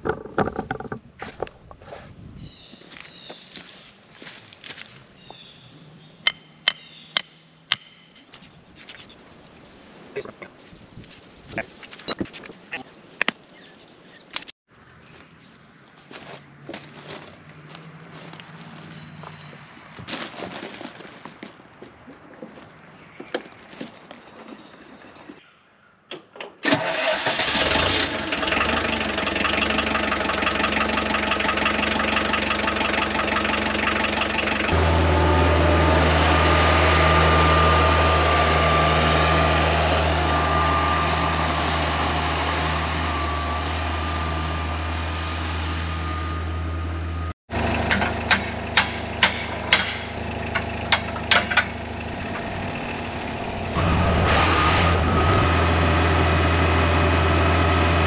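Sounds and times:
construction machine engine running: 0:27.5 - 0:58.0.

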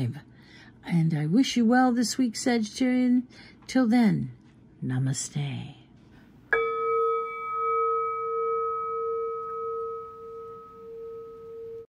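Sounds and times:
meditation bell ringing: 0:06.5 - 0:11.9.

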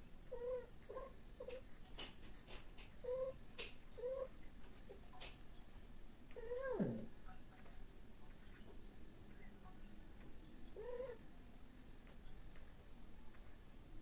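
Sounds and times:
cat crying: 0:06.4 - 0:07.1, 0:10.8 - 0:11.2.

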